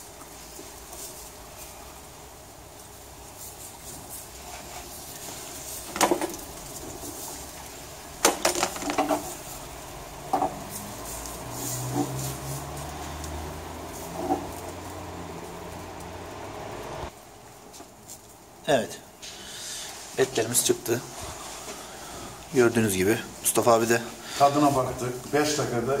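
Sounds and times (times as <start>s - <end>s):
meat and coals hissing: 0.0s - 26.0s
metal skewers clinking on grill: 2.8s - 16.4s.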